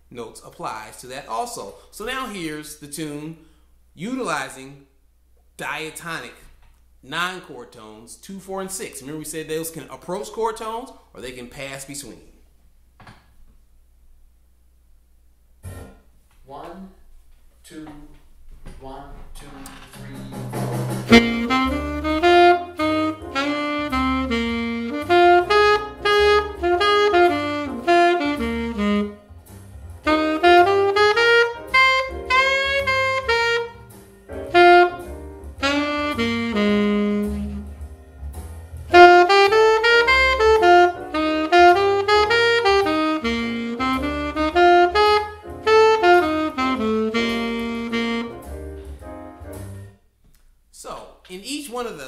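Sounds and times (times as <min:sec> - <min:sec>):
solo jazz saxophone: 0:21.1 - 0:37.9, 0:38.8 - 0:49.8.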